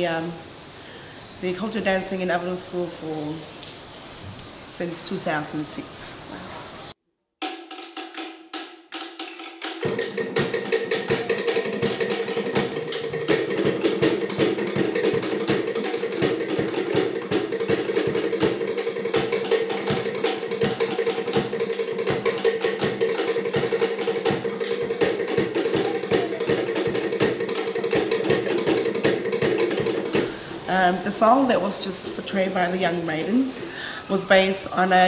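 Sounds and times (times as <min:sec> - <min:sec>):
wooden slit drum strikes: 0:07.4 - 0:30.4
skin drums: 0:07.4 - 0:35.0.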